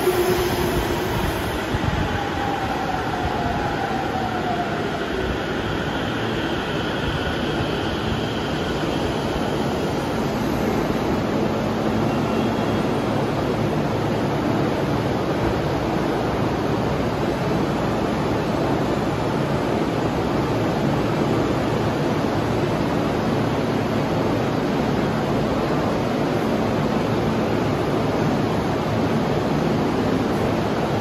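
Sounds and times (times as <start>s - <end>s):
train equipment rushing noise: 0.0s - 2.2s.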